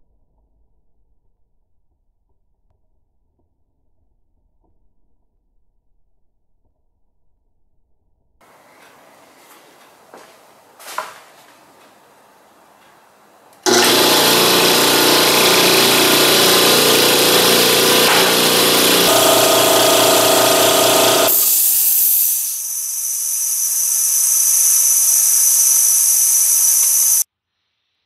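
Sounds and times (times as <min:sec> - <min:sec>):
air compressor running: 0:13.7 - 0:27.3
hiss of escaping air: 0:20.9 - 0:27.2.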